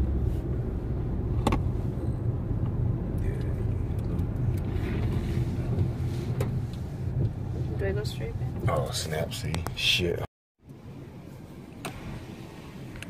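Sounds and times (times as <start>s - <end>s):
car engine and tyre rumble: 0.0s - 13.0s
click inside car: 1.4s - 1.7s, 11.7s - 12.0s.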